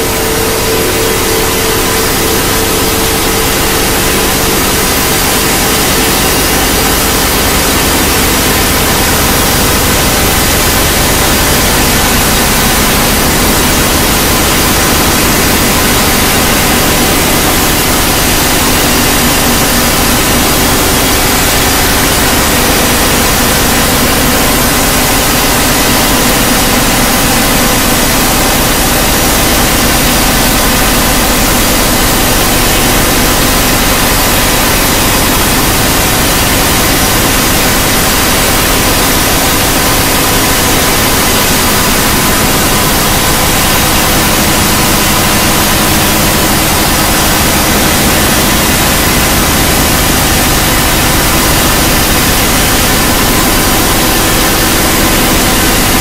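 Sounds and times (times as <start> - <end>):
electronic static drone: 0.0 - 56.0.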